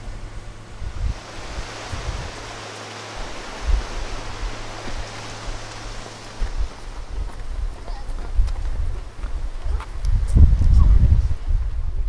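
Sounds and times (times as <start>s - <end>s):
river rapids rushing: 0.0s - 9.6s
wind buffeting microphone: 0.0s - 12.0s.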